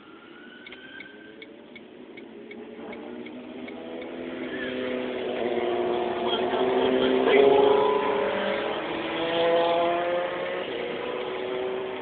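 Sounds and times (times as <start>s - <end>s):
vehicle engine: 0.0s - 12.0s
turn signal clicking: 0.6s - 4.1s.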